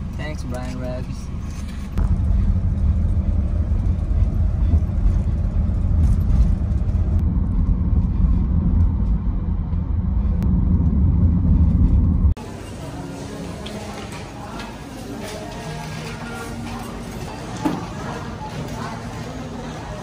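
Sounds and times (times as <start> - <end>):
road and wind rumble: 0.0 - 12.4.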